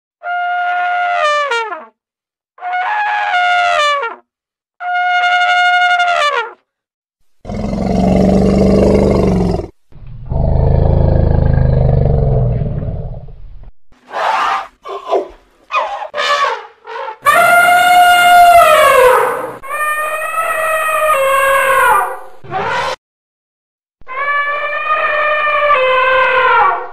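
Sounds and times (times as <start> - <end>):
elephant trumpeting: 14.1 - 23.0, 24.1 - 26.9.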